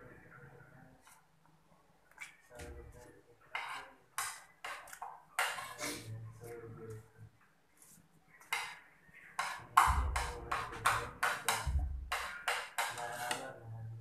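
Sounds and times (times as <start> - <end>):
metal spoon scraping a plate: 3.5 - 6.1.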